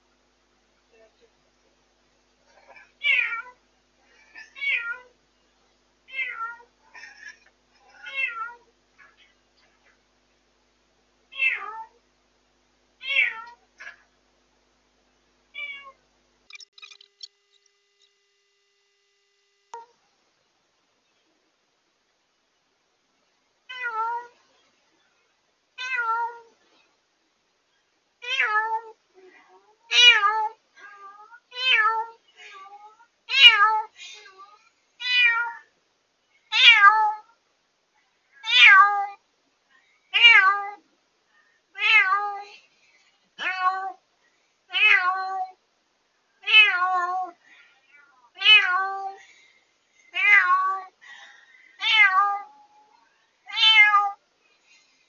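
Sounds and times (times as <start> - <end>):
cat meowing loudly: 48.3 - 49.0, 53.5 - 54.2.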